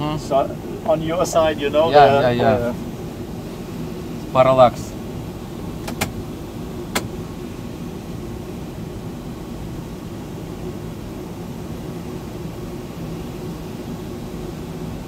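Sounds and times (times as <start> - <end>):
sharp clicks: 5.8 - 6.2, 6.9 - 7.1.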